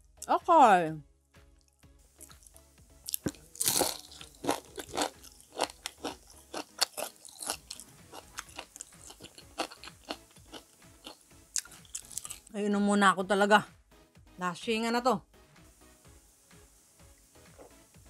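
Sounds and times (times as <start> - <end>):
crunching and chewing crispy fritters: 2.2 - 12.5.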